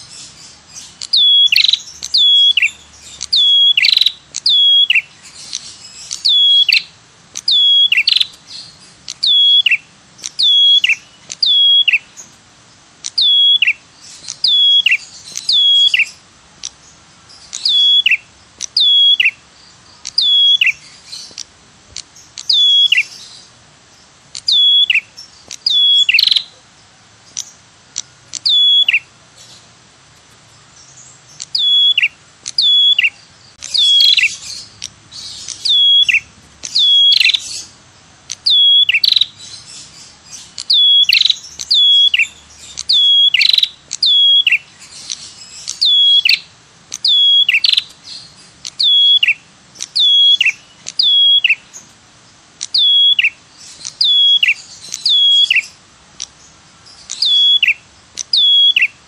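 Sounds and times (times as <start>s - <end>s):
bird call descending notes: 1.0s - 12.2s, 13.1s - 16.2s, 17.5s - 19.4s, 20.1s - 21.0s, 22.4s - 23.2s, 24.4s - 26.5s, 28.4s - 29.1s, 31.4s - 39.4s, 40.6s - 44.7s, 45.6s - 51.7s, 52.7s - 55.8s, 57.1s - 59.0s.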